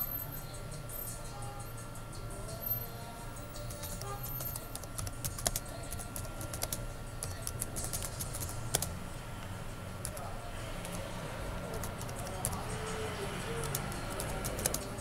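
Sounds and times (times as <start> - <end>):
keyboard typing clicks: 3.6 - 8.9, 11.7 - 12.6, 13.6 - 15.0.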